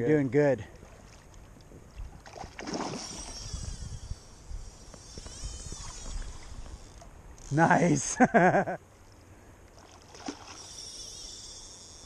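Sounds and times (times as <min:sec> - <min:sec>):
river water lapping at shore: 0:00.4 - 0:08.2, 0:08.8 - 0:12.0
wind rumble on microphone: 0:01.7 - 0:07.6.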